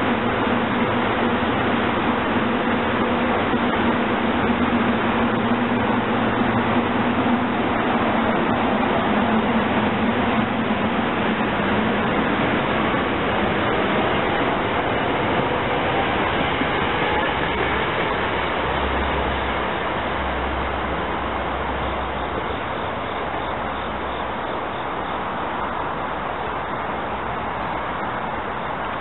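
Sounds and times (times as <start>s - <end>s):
electric train running on track: 0.0s - 29.0s.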